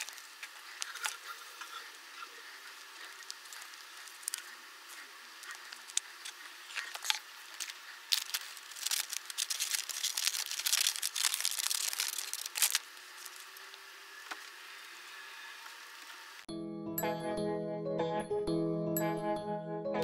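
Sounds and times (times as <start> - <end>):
wrapping crinkling and tearing: 0.0 - 1.8, 2.4 - 13.8.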